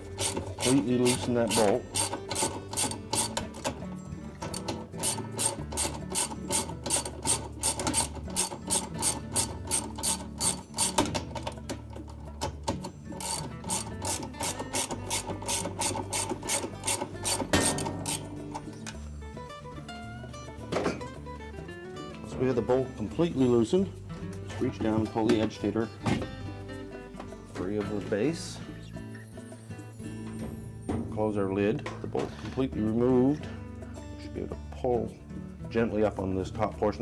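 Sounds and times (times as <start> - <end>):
hand ratchet clicking rapidly: 0.0 - 3.8, 4.5 - 18.4.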